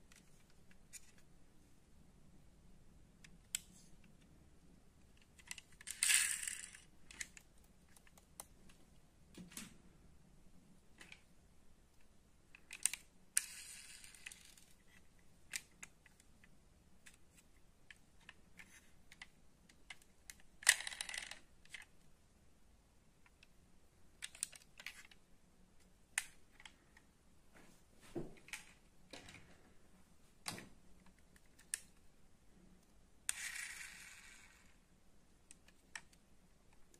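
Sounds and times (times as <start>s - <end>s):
toy car rattling scrape: 5.4s - 6.9s, 13.4s - 14.7s, 33.3s - 34.8s.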